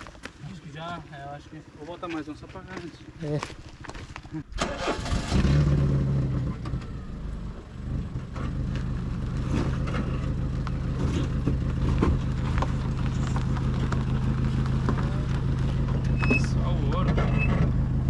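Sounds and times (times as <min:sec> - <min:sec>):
engine revving: 0:04.6 - 0:18.0.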